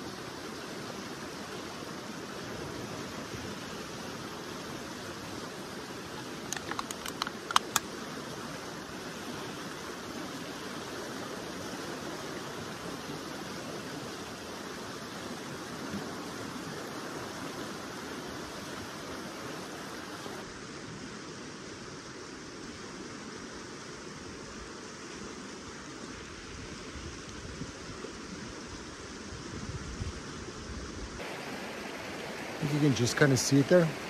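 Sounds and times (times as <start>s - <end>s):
river rushing over rocks: 0.0s - 34.0s
sharp clicks: 6.4s - 7.9s.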